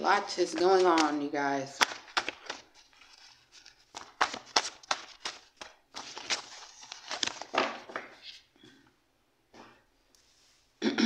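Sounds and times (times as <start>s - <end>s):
paper cards flicking and rustling: 0.0s - 8.5s
cards tapping together: 0.4s - 2.7s, 3.6s - 8.2s.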